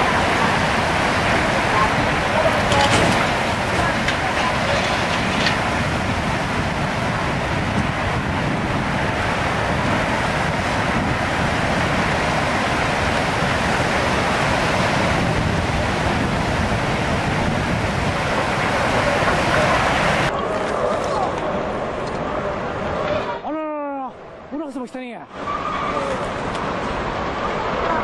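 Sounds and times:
floodwater rushing: 0:00.0 - 0:28.0.

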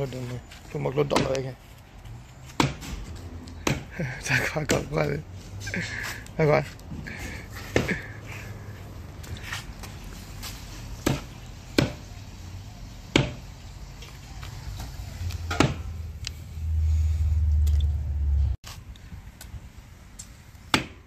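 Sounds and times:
cleaver chopping on wooden block: 0:01.1 - 0:01.4, 0:02.6 - 0:02.9, 0:03.6 - 0:03.9, 0:11.0 - 0:12.0, 0:13.1 - 0:13.4, 0:15.5 - 0:15.9, 0:20.7 - 0:21.0.

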